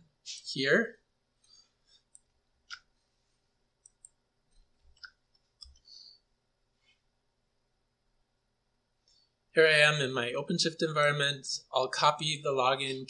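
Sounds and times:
computer keyboard and mouse clicks: 0:03.8 - 0:05.9.

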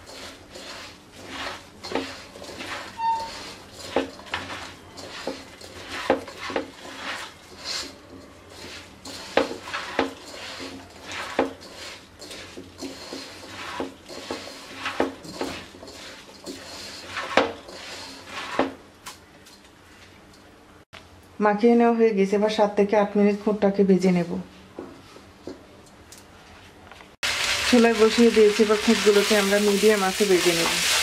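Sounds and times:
hand mixing rice in a pot: 0:00.0 - 0:18.8, 0:27.4 - 0:31.0.

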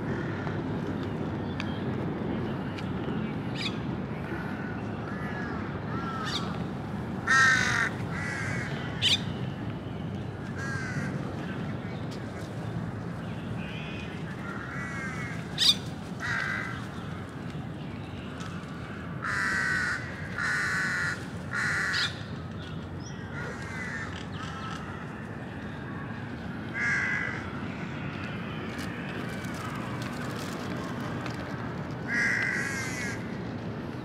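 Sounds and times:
crow cawing: 0:04.4 - 0:06.5, 0:07.2 - 0:09.2, 0:10.6 - 0:11.1, 0:14.4 - 0:16.8, 0:19.0 - 0:22.2, 0:23.4 - 0:25.1, 0:26.7 - 0:28.2, 0:32.1 - 0:33.3.

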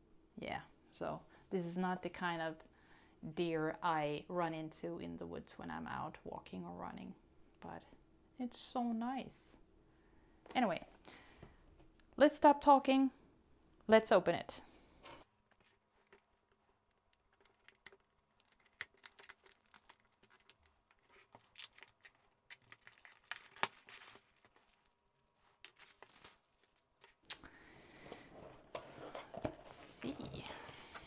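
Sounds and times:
plastic wrap crinkling: 0:15.5 - 0:27.4
plastic wrap crackling: 0:16.7 - 0:27.4.

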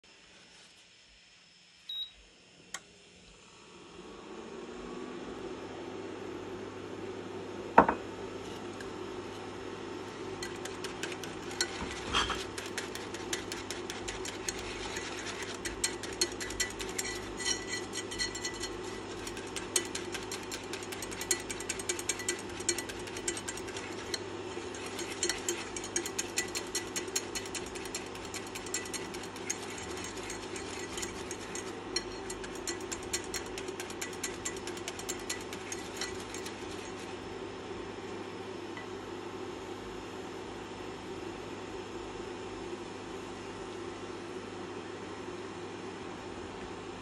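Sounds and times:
steady low hum: 0:01.4 - 0:40.6
whisk rattling against a pan: 0:10.3 - 0:37.2.

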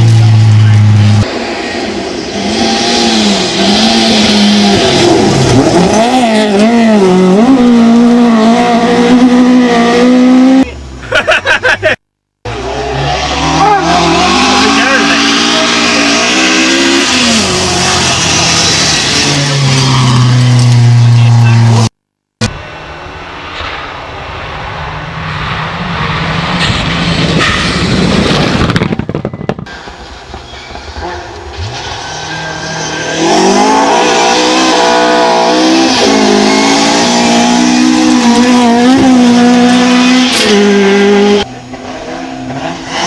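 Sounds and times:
rally car engine revving hard: 0:00.0 - 0:10.7, 0:12.5 - 0:21.9, 0:31.0 - 0:43.0.

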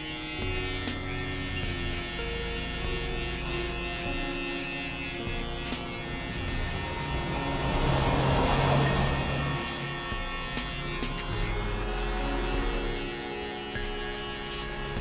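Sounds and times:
electric hair clippers buzzing: 0:00.0 - 0:15.0.

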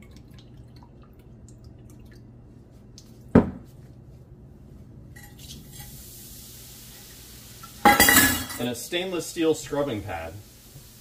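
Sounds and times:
fizzing hiss: 0:05.4 - 0:11.0
metal cup clinking on wok: 0:07.9 - 0:08.6.

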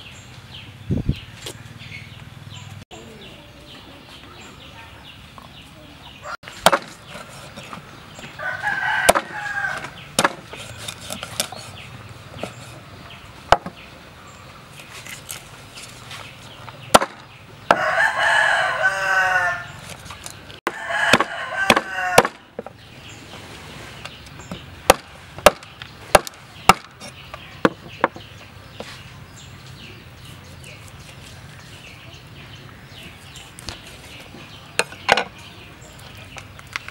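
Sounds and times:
cleaver chopping on wooden board: 0:06.6 - 0:07.2, 0:09.0 - 0:11.7, 0:13.5 - 0:13.8, 0:16.9 - 0:17.9, 0:20.7 - 0:22.7, 0:24.9 - 0:28.3
rooster crowing: 0:08.4 - 0:10.0, 0:17.7 - 0:19.8, 0:20.7 - 0:22.4.

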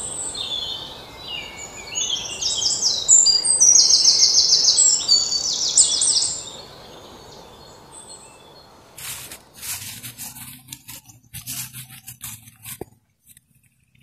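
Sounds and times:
birds chirping: 0:00.0 - 0:12.6
steady outdoor hiss: 0:00.0 - 0:14.0
footsteps through grass: 0:09.0 - 0:12.9.

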